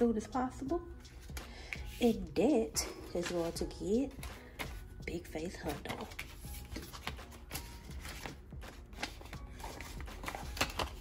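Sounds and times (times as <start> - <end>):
paper and plastic rustling: 5.7 - 11.0.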